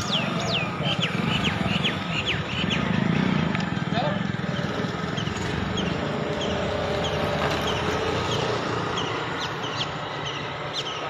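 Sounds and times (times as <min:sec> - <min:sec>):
small birds chirping: 0:00.0 - 0:11.0
vehicle engine running: 0:00.0 - 0:11.0.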